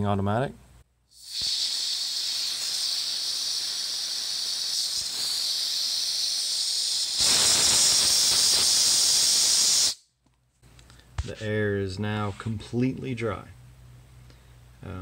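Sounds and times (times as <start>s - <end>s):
compressed air hissing from valve: 1.1s - 10.1s.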